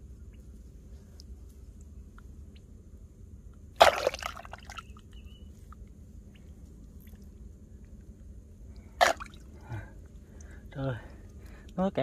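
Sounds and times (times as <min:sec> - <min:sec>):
small wet sounds: 0:03.5 - 0:11.8
muddy water splash: 0:03.8 - 0:05.0, 0:09.0 - 0:09.6.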